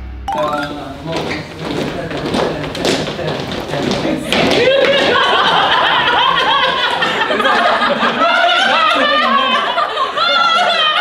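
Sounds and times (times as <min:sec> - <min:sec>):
group of people laughing: 0:04.5 - 0:11.0.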